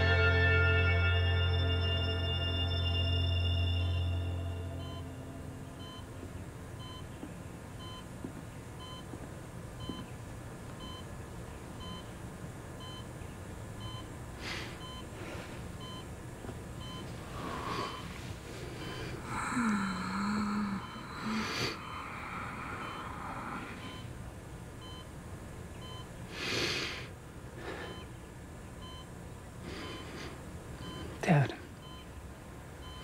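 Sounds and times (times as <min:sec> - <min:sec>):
patient monitor beeping: 0:00.0 - 0:09.2, 0:09.8 - 0:10.2, 0:10.8 - 0:11.1, 0:11.8 - 0:12.1, 0:12.8 - 0:13.2, 0:13.8 - 0:24.2, 0:24.8 - 0:25.1, 0:25.8 - 0:26.2, 0:27.6 - 0:28.2, 0:28.8 - 0:32.2, 0:32.8 - 0:33.0
breathy sounds: 0:17.2 - 0:24.1, 0:26.3 - 0:28.1, 0:29.6 - 0:31.3
low voiced sound: 0:19.2 - 0:24.1.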